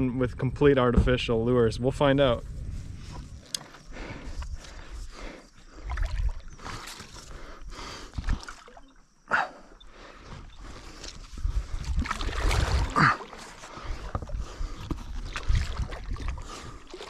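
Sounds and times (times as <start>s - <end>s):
water splashing from paddling: 11.7s - 17.0s.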